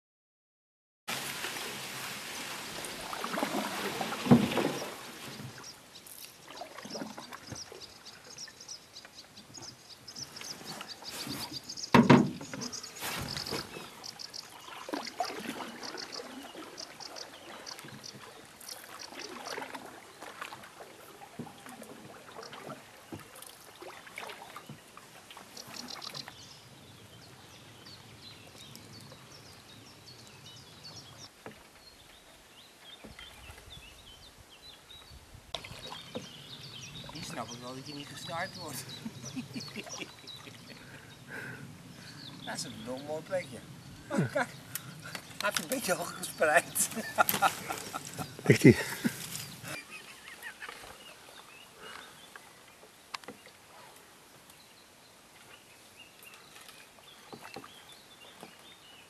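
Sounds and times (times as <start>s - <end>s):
paddle strokes through water: 1.1s - 59.0s.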